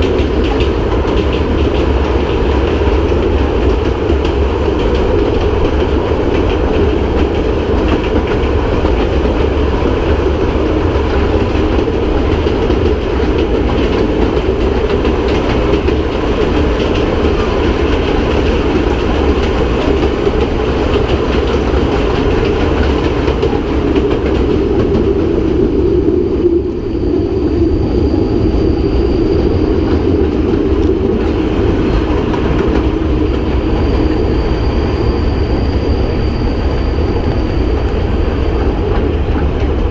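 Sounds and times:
train wheels on rails: 0.0 - 39.9
faint high whine: 25.2 - 39.4.

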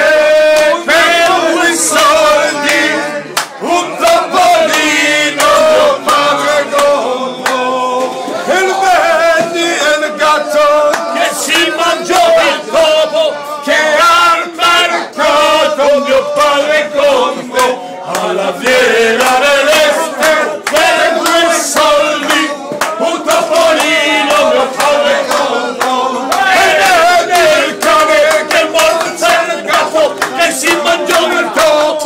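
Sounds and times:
men chanting in unison: 0.0 - 32.0
hand claps: 0.4 - 8.2, 10.8 - 12.2, 17.5 - 32.0.

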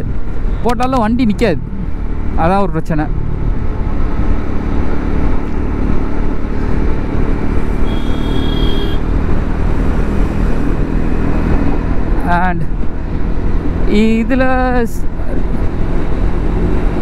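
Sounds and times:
wind rush on microphone: 0.0 - 2.4, 8.9 - 17.0
motorcycle engine cruising: 0.0 - 17.0.

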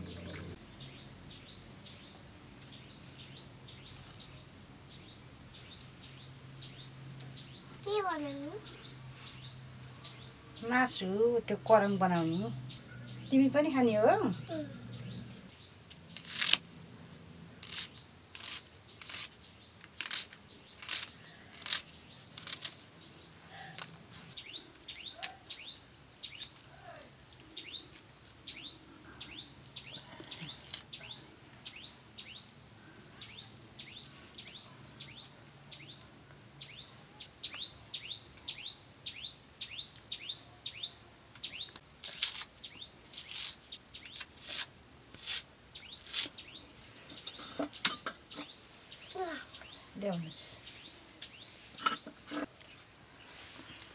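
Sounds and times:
sickle blade cutting garlic: 17.6 - 22.8, 42.0 - 42.5, 43.1 - 46.4
small bird peeping: 24.2 - 44.3.

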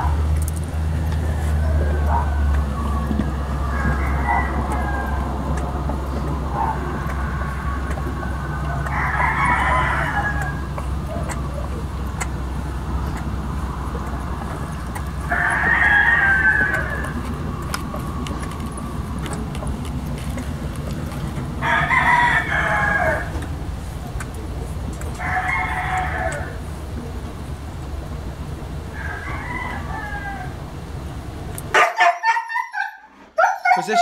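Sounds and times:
steady low hum: 0.0 - 31.8
puppies crying in high squeals: 1.3 - 13.2, 13.9 - 23.5, 31.7 - 34.0.

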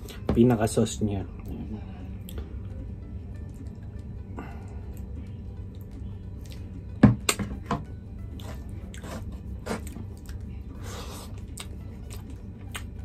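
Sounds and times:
chewing: 8.3 - 12.9.

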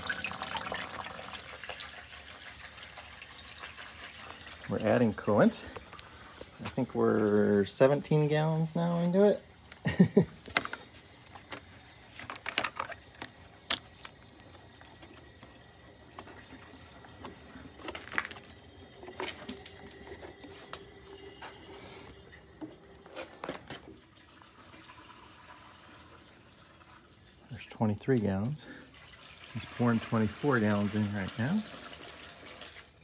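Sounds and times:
liquid pouring from jugs: 0.0 - 33.0
plastic jugs clicking: 9.7 - 21.7, 22.6 - 24.0.

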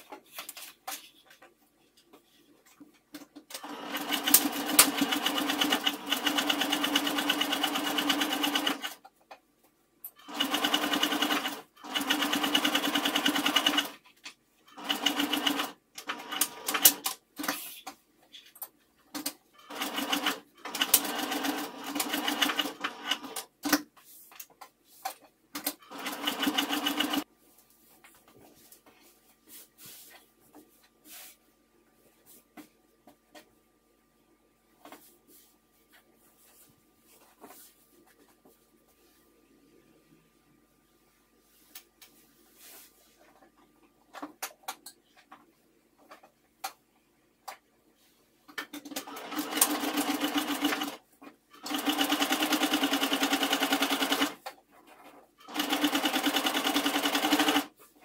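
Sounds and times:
sewing machine stitching: 3.5 - 9.0, 10.2 - 14.0, 14.7 - 17.6, 19.6 - 23.8, 25.6 - 27.2, 48.8 - 51.0, 51.6 - 54.4, 55.4 - 57.7.

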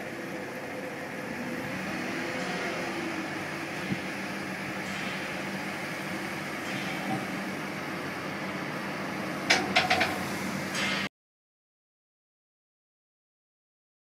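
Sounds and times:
sharp knocks: 9.5 - 10.2.

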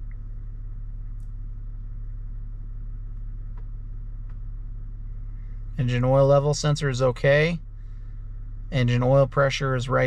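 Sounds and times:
diesel engine idling: 0.0 - 10.0.

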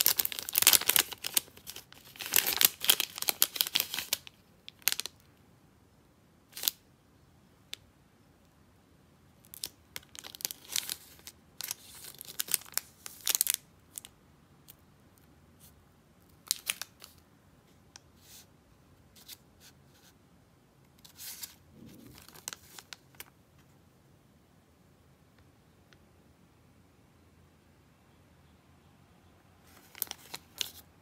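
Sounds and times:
plastic wrapper crinkling: 0.0 - 5.3, 6.5 - 6.8, 9.4 - 14.8, 16.4 - 17.2, 21.0 - 23.4, 29.6 - 30.9.

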